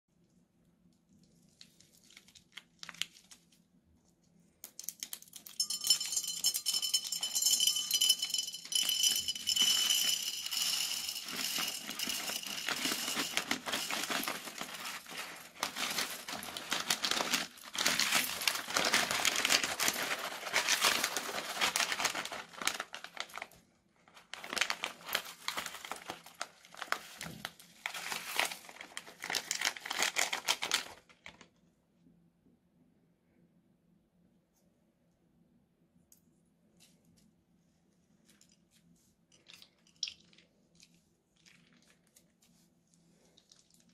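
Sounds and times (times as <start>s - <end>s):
plastic bags crinkling: 1.6s - 3.6s, 4.8s - 31.5s
plastic beads rattling into bowl: 4.7s - 23.5s, 27.9s - 31.0s.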